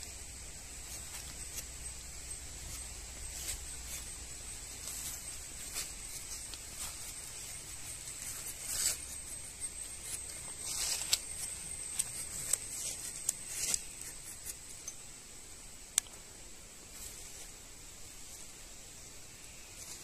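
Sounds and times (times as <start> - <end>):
knife scraping tree bark: 0.8 - 15.0.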